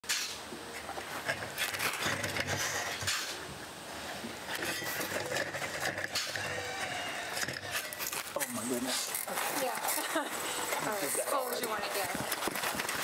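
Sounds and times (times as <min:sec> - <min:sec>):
shovels scraping sawdust: 0:00.0 - 0:00.4, 0:01.1 - 0:03.4, 0:04.0 - 0:13.0.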